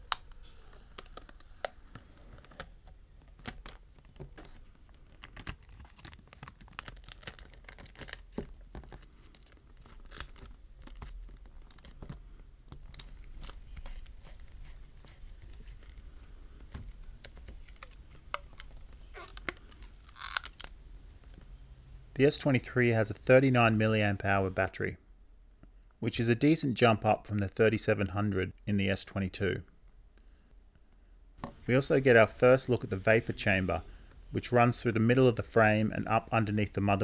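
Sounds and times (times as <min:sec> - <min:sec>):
adhesive strips tearing: 0:05.0 - 0:21.4.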